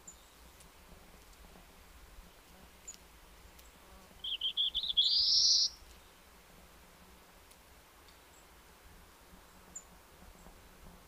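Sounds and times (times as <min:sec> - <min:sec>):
faint high bird chips: 0:04.2 - 0:05.8
warbler singing buzzy notes: 0:04.2 - 0:05.8.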